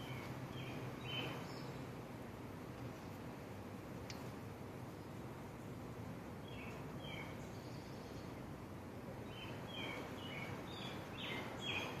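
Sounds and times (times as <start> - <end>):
bird chirping: 0.0 - 2.0, 6.4 - 8.5, 9.2 - 12.0
low outdoor rumble: 0.0 - 12.0.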